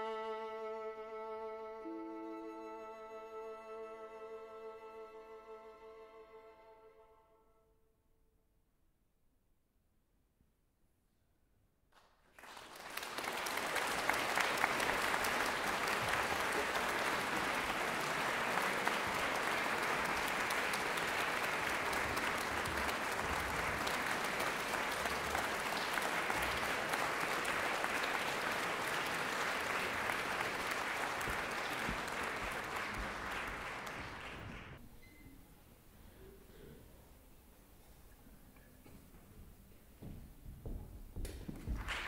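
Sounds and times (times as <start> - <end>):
audience applauding: 12.0 - 34.8, 41.7 - 42.0.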